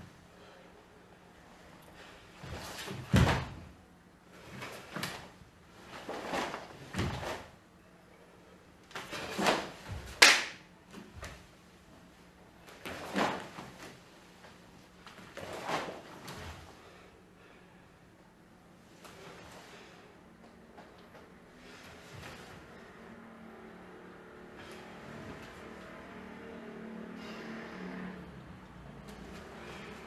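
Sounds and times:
cloth uniform snapping: 8.9 - 11.0.

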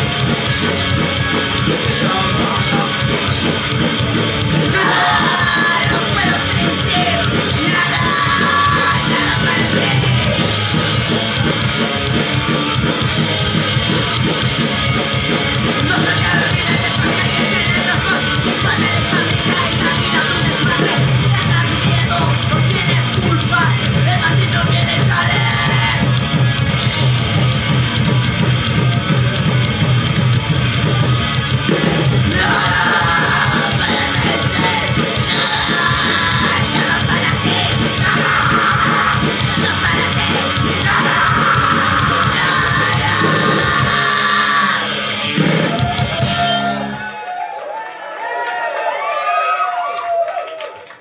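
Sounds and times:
punk band playing live: 0.0 - 47.5
shouted vocals: 4.4 - 10.6, 15.6 - 26.2, 32.2 - 50.8.

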